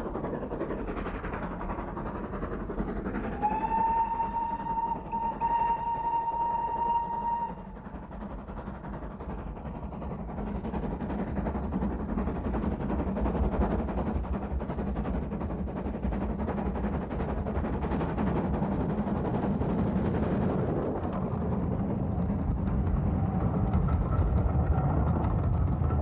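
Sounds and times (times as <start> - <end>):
steam locomotive chuffing: 0.0 - 26.0
steam whistle: 3.4 - 7.8.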